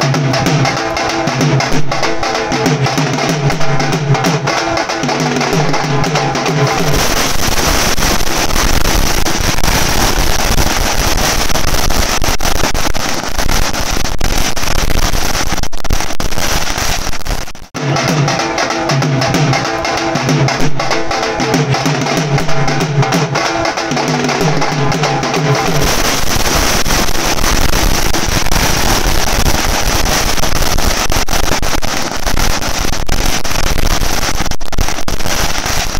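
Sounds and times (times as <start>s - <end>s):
street drum band playing: 0.0s - 16.9s, 17.7s - 35.9s
ground firecrackers fizzing: 4.2s - 17.8s, 23.1s - 35.9s.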